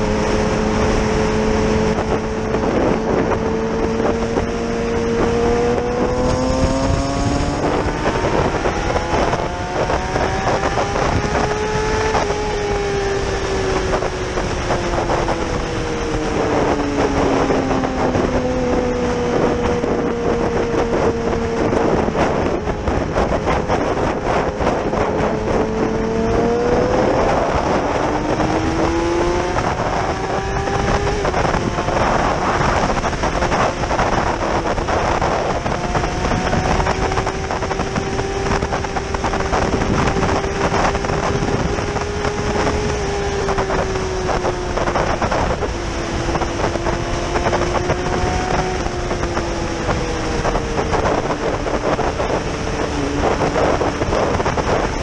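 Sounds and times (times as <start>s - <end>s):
motorcycle engine accelerating: 0.0s - 55.0s
wind rushing over microphone: 0.0s - 55.0s.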